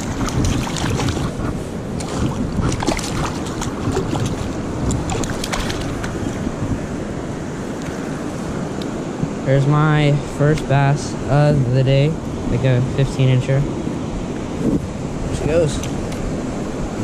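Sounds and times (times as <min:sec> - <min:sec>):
river water moving: 0:00.0 - 0:17.0
wind on microphone: 0:00.0 - 0:17.0
fish splashing at surface: 0:02.0 - 0:06.2.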